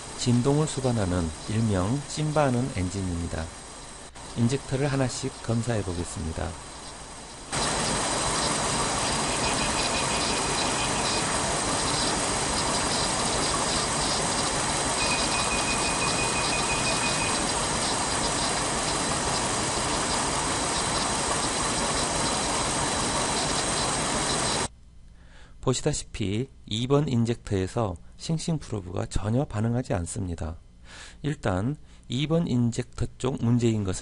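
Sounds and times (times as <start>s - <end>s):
steady high beep: 9.2s - 11.2s, 15.0s - 17.5s.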